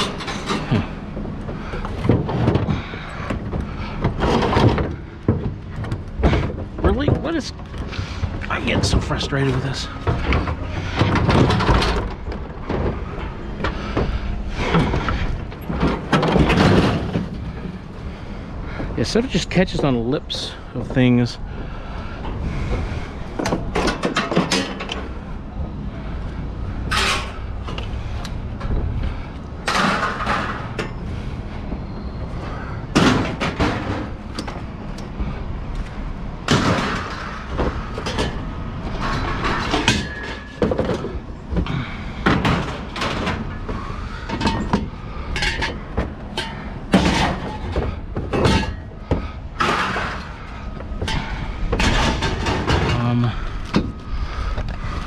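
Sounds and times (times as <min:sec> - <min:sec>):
scrap metal clanking: 0:36.5 - 0:54.9.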